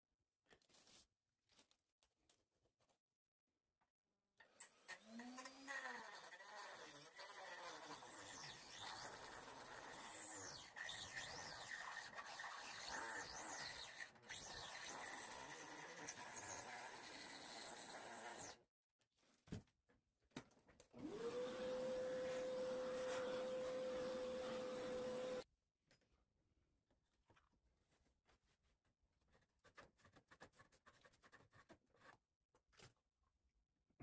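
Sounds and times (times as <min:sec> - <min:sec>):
rotary tool cutting wood: 0:04.6 - 0:18.6, 0:21.0 - 0:25.4.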